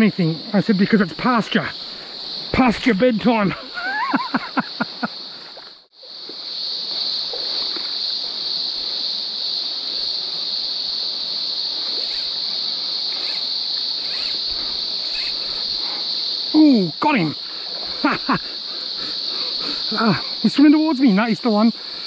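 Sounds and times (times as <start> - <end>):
high-pitched insect chorus: 0.0 - 22.0
trickling stream: 0.0 - 22.0.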